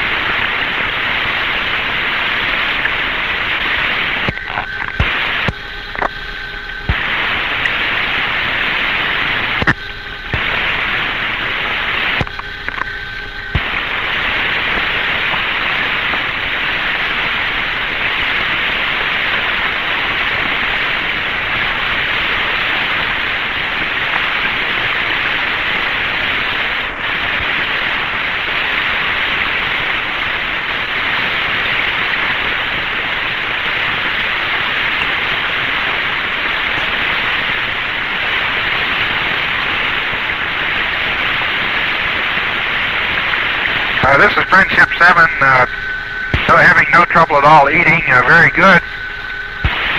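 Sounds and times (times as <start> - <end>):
radio static hiss: 0.0 - 49.9
radio clicks: 4.2 - 6.2, 9.5 - 10.6, 12.0 - 16.3, 43.9 - 48.9.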